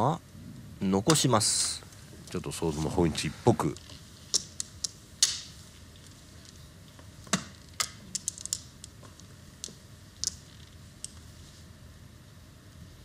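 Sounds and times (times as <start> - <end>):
mahjong tiles clicking: 3.7 - 6.6, 7.3 - 11.3.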